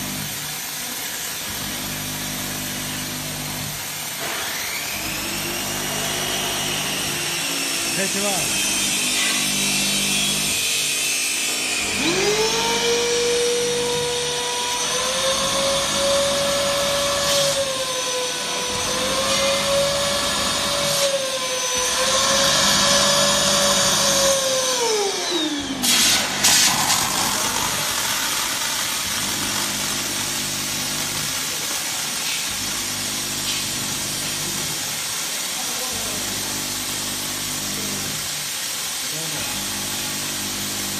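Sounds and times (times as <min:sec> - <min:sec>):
electric motor whining: 0:11.7 - 0:31.4.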